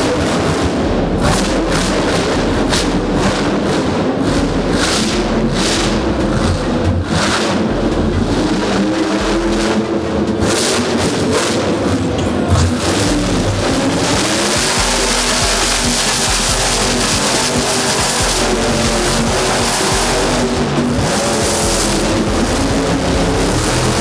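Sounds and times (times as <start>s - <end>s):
loud music: 0.0s - 24.0s
truck engine revving hard: 0.0s - 24.0s.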